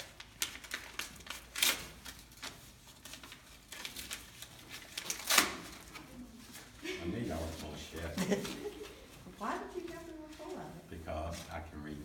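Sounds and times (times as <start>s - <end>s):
tissue paper crinkling: 0.0s - 12.0s.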